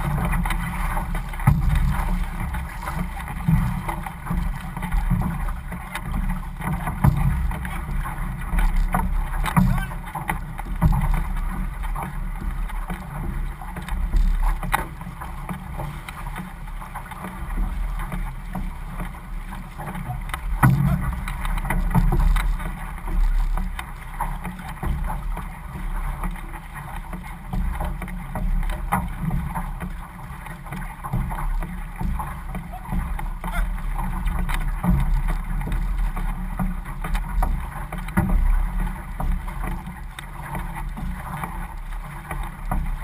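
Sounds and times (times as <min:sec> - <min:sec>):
low wind rumble on microphone: 0:00.0 - 0:43.0
paddles splashing: 0:00.0 - 0:43.0
water rushing along hull: 0:00.0 - 0:43.0.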